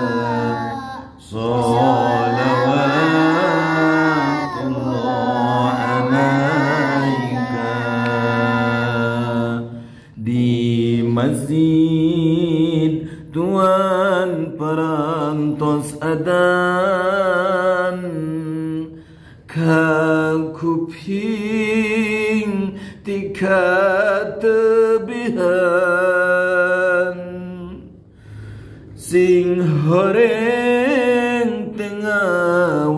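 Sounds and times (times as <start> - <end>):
man singing devotional chant: 0.0 - 28.0, 28.9 - 32.9
man breathing: 9.8 - 10.2, 18.9 - 19.5, 28.0 - 29.0.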